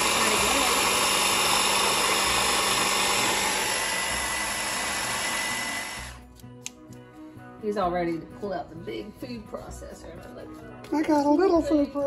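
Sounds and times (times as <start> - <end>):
immersion blender running: 0.0 - 6.2.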